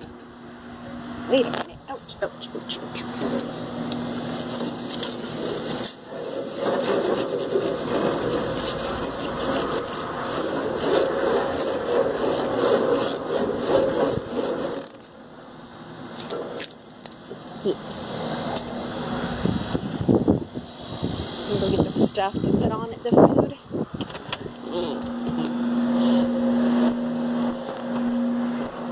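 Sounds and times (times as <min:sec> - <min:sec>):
onion scraping grill grates: 0:02.6 - 0:15.2.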